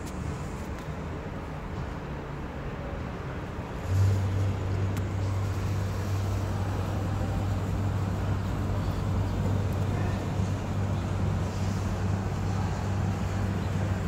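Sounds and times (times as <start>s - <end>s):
low mechanical hum: 0.0s - 14.0s
street background noise: 0.0s - 14.0s.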